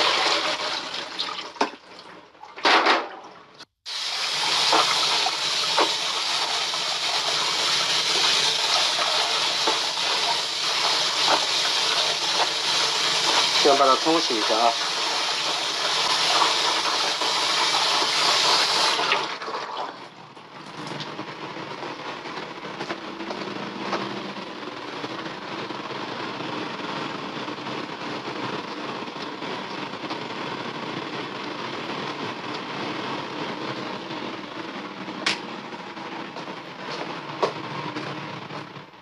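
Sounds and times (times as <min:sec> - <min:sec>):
kitchen background hiss and hum: 0:00.0 - 0:39.0
tap water running into sink: 0:03.9 - 0:20.0.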